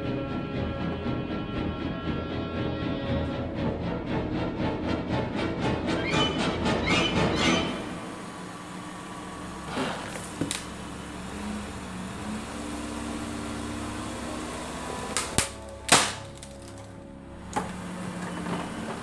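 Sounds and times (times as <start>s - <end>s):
car engine humming: 7.6s - 19.0s
wooden skateboard deck cracking: 15.1s - 17.0s.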